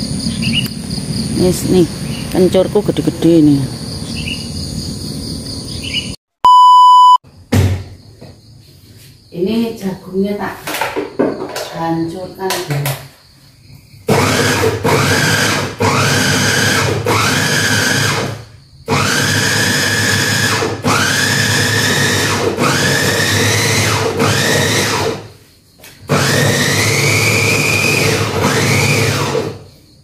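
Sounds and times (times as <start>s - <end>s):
electric food chopper motor whine: 14.1s - 25.3s, 26.1s - 29.6s.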